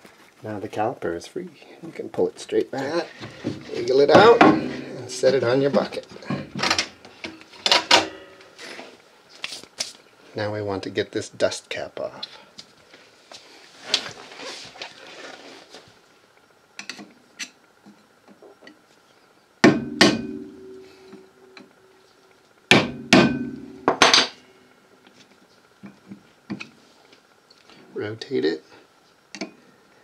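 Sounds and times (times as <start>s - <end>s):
hammer striking metal: 4.1s - 5.6s, 19.6s - 21.6s, 22.7s - 24.4s.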